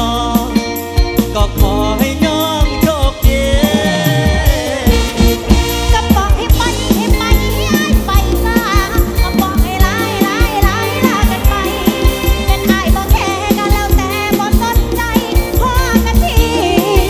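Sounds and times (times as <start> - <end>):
live band music: 0.0 - 17.0
heavy bass beat: 4.4 - 6.6.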